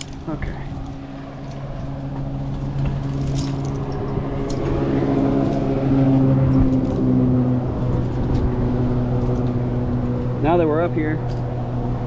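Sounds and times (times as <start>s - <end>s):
light clicks and rustles: 0.0s - 4.8s
engine droning steadily: 0.0s - 12.0s.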